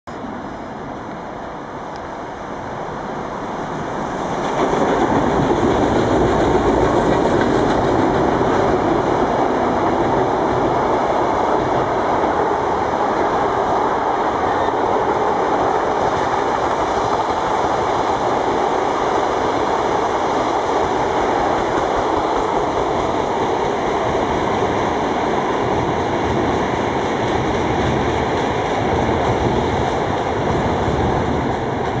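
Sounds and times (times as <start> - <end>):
electric train passing: 0.1 - 32.0.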